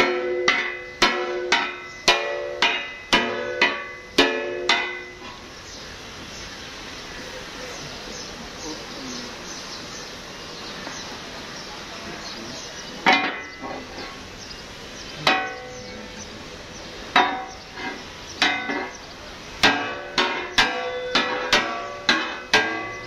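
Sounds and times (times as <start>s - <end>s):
hammer striking metal blade: 0.0s - 5.1s.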